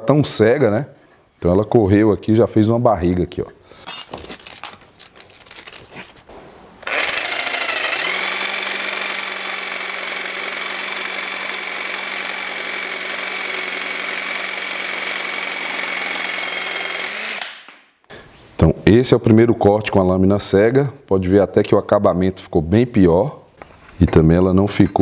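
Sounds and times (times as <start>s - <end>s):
light handling noises: 3.9s - 6.3s
jigsaw cutting wood: 6.8s - 17.8s.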